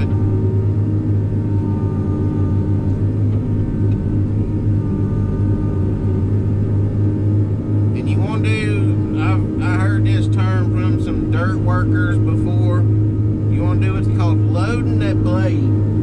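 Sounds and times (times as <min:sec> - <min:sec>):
diesel engine droning: 0:00.0 - 0:16.0.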